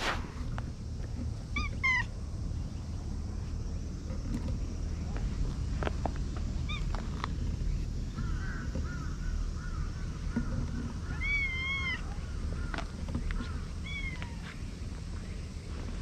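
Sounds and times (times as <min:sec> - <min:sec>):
steady low rumble: 0:00.0 - 0:16.0
cat meowing: 0:01.6 - 0:02.1, 0:11.1 - 0:12.2, 0:13.8 - 0:14.5.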